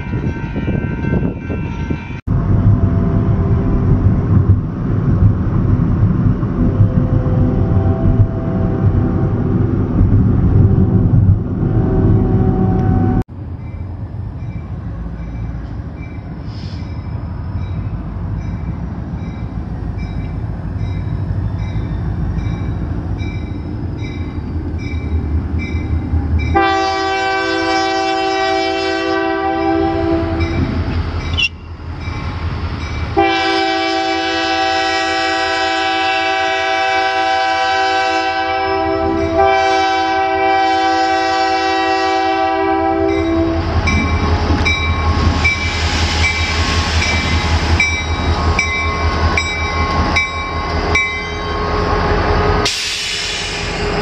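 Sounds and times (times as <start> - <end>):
diesel locomotive engine rumbling: 0.0 - 54.0
train horn blast: 6.7 - 9.7, 10.5 - 13.2, 26.5 - 30.8, 33.2 - 45.3.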